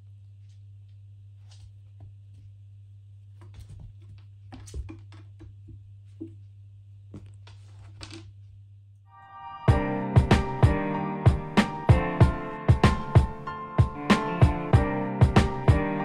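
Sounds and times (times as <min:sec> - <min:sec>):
kitten scrambling on floor: 0:03.4 - 0:06.3
music: 0:09.1 - 0:16.0.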